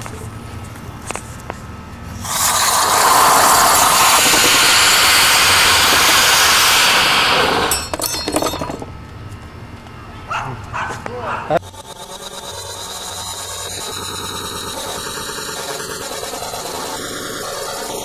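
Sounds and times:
firework hissing: 0:02.2 - 0:07.8.

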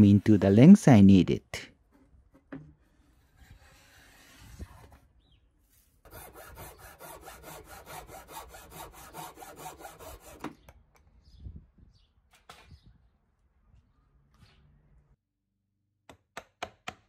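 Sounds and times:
pull saw cutting wood: 0:06.1 - 0:10.6.

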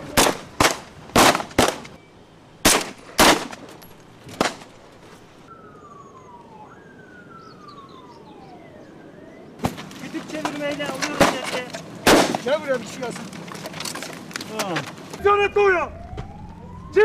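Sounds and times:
rifle shots: 0:00.1 - 0:02.0, 0:02.6 - 0:03.6, 0:12.0 - 0:12.4
high tone falling in pitch: 0:05.5 - 0:09.5, 0:15.2 - 0:17.0.

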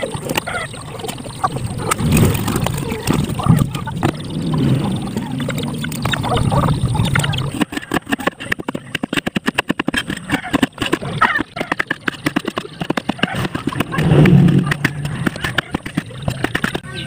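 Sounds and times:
low background rumble: 0:13.8 - 0:16.3.

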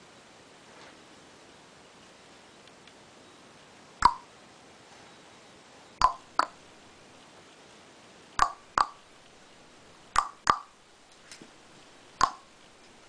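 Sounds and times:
sharp pops or knocks: 0:04.0 - 0:04.2, 0:06.0 - 0:06.6, 0:08.4 - 0:09.0, 0:10.2 - 0:10.7, 0:12.2 - 0:12.5.

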